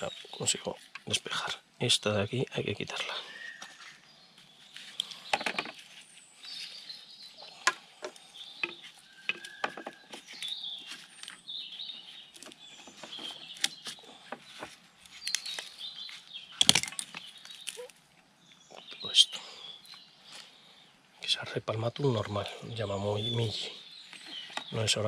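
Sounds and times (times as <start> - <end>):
small birds chirping: 0.0 - 25.0
roots cracking and clicking: 12.2 - 18.7.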